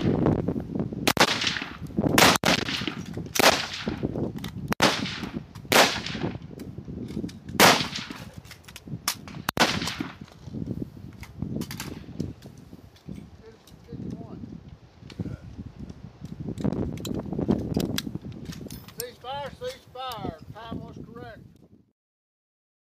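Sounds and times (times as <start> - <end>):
rifle shots with echo: 1.1 - 4.0, 4.8 - 6.4, 7.6 - 8.2, 9.2 - 10.2.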